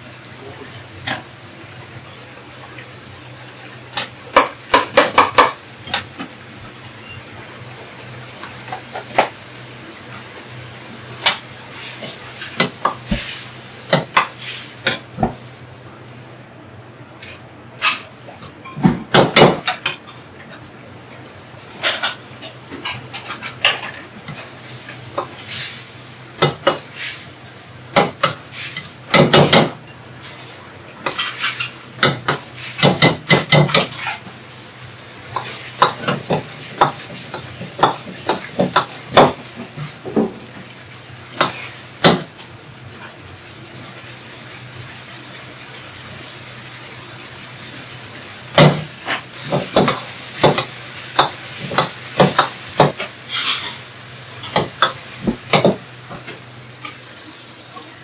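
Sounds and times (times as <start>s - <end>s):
metal ladle scraping a wok: 53.3s - 53.8s.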